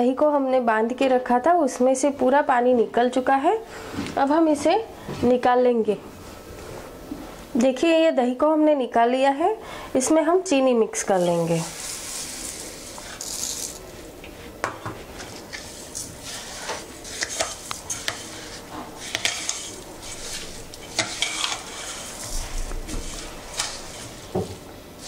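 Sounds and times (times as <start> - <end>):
spoon scraping and clinking bowl: 15.3 - 24.3.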